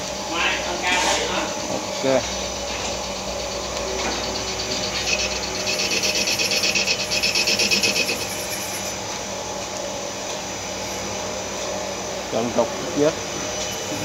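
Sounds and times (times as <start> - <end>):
lathe machine hum: 0.0 - 14.0.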